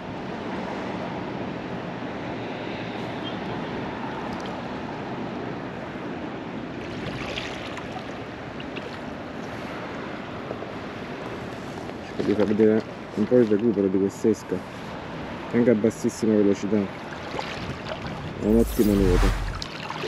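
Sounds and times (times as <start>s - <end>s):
rushing wind: 17.6s - 19.9s.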